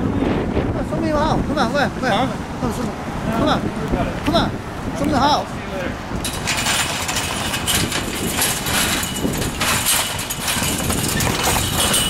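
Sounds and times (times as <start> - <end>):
steady low rumble: 0.0 - 12.0
chain-link fence rattling: 6.2 - 12.0.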